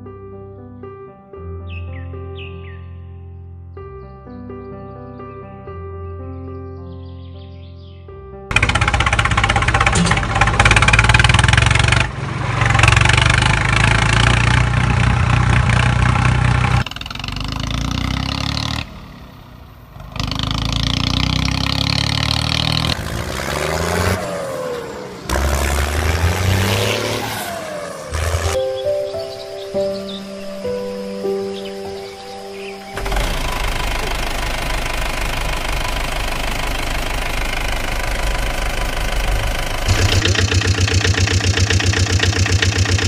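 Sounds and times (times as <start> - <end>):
tractor engine revving: 8.5 - 28.7, 32.9 - 43.0.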